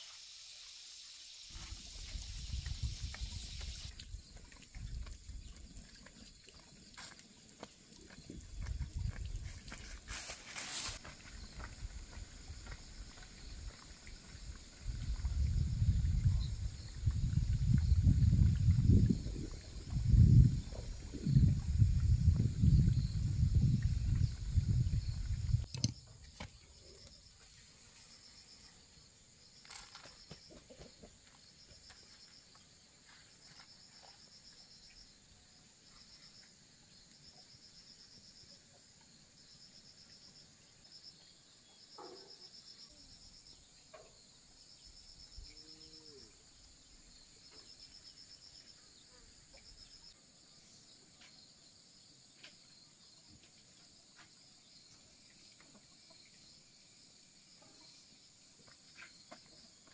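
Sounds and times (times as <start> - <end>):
steady high hiss: 0.0 - 3.9, 9.9 - 11.0
insects trilling: 0.0 - 59.9.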